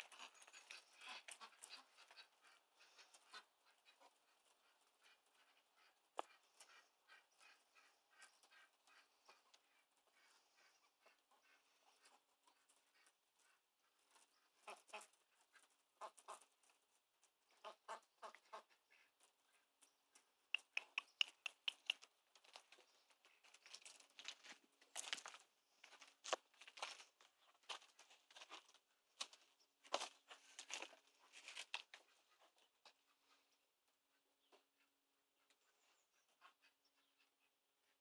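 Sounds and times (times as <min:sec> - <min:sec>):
ducks quacking: 0:00.0 - 0:16.6, 0:17.5 - 0:19.7.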